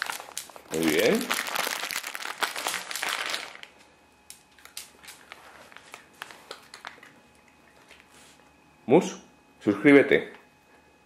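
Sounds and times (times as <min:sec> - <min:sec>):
crinkling rustle: 0:00.0 - 0:08.1.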